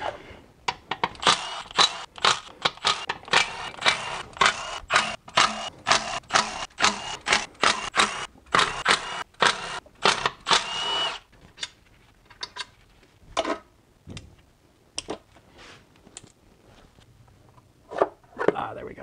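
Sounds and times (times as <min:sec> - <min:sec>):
cordless ratchet bursts: 0:01.2 - 0:11.2.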